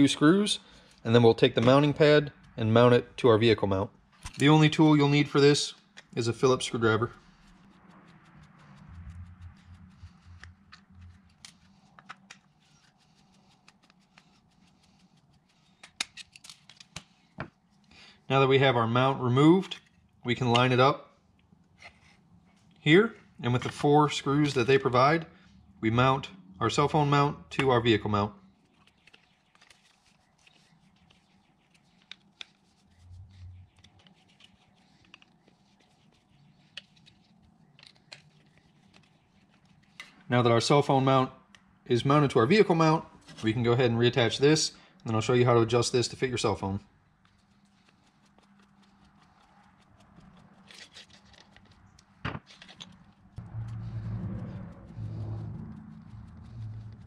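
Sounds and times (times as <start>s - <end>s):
brief low rumble: 7.9s - 11.0s, 53.4s - 57.0s
small plastic parts handled: 47.3s - 53.3s.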